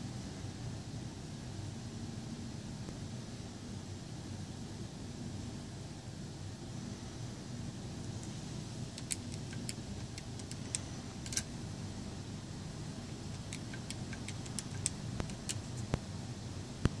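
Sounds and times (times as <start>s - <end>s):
steady low hum: 0.0s - 17.0s
plastic keypad keys clicking: 9.0s - 11.5s, 13.3s - 15.8s.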